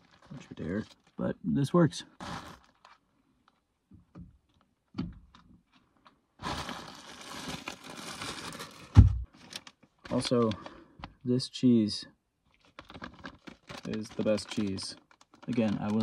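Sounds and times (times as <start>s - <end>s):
plastic bag crinkling: 0.0s - 1.2s, 2.2s - 3.6s, 6.4s - 10.8s, 12.5s - 16.0s
loud thump: 9.0s - 9.3s.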